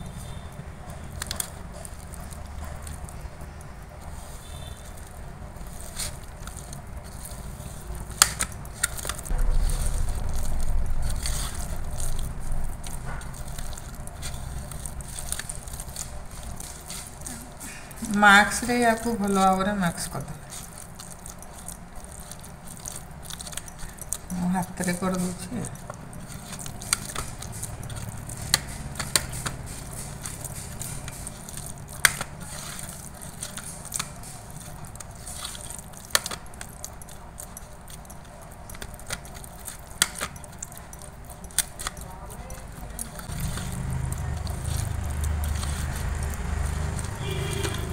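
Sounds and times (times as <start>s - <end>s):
hand squishing wet food in bowl: 0.2s - 47.9s
steady low hum: 6.2s - 18.2s.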